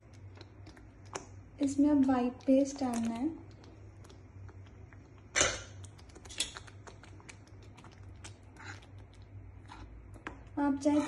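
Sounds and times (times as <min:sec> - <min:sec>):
low steady hum: 0:00.0 - 0:11.0
spoon scraping a metal pan: 0:10.8 - 0:11.0.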